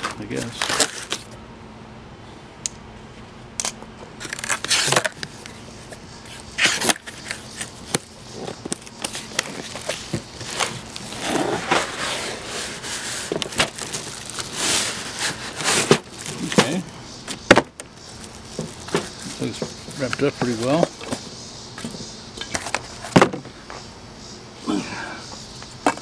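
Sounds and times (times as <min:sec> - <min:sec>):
cardboard being handled and pulled open: 0:06.6 - 0:16.8.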